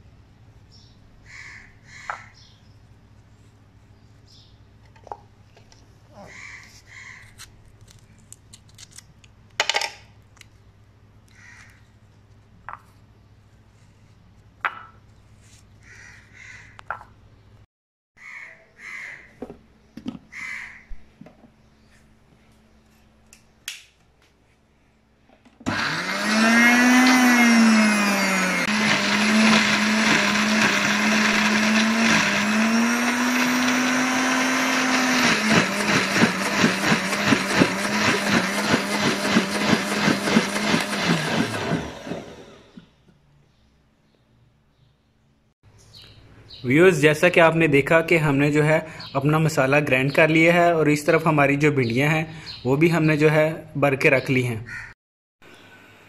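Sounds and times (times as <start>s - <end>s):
electric blender motor whine: 25.6s - 42.9s.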